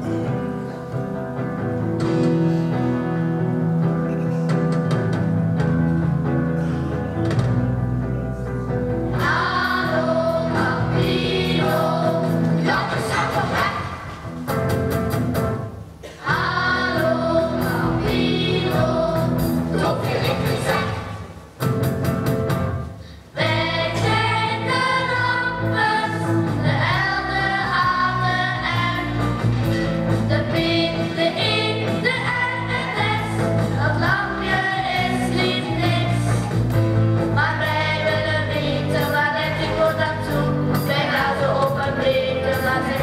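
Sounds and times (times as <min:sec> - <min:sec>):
instrumental accompaniment: 0:00.0 - 0:43.0
children's choir singing: 0:09.1 - 0:14.3, 0:16.0 - 0:21.4, 0:23.4 - 0:36.7, 0:37.3 - 0:43.0.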